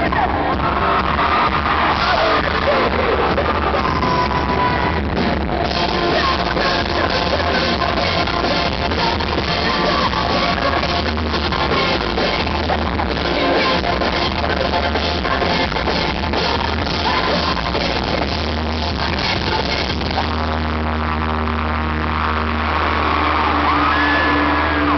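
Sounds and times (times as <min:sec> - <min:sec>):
live rock band: 0:00.0 - 0:24.9
woman singing: 0:05.7 - 0:20.2.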